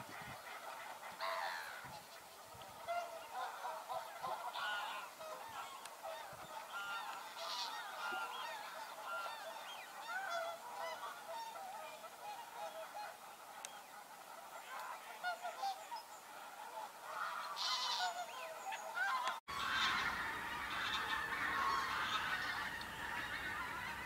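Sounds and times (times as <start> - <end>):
flock of geese honking: 0.0 - 24.0.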